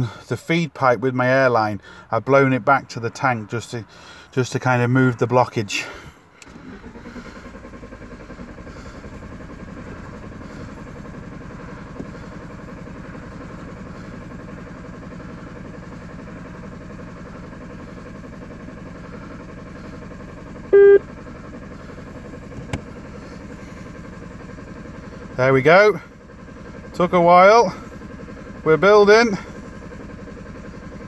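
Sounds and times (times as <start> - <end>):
engine cranking on starter: 5.8 - 14.6, 17.9 - 25.2
short loud beep: 20.8 - 21.0.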